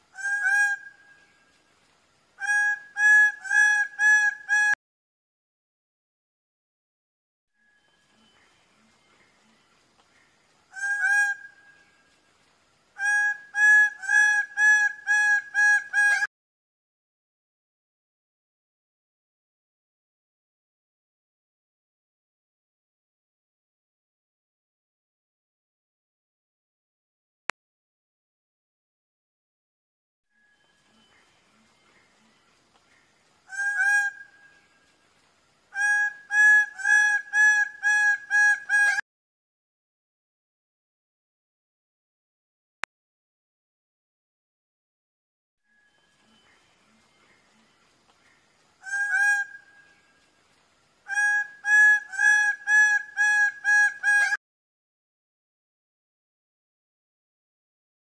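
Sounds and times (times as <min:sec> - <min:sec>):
bird calling loudly: 0:02.4 - 0:04.8, 0:13.0 - 0:16.3, 0:33.5 - 0:34.5, 0:35.7 - 0:39.0, 0:48.8 - 0:50.0, 0:51.1 - 0:54.4.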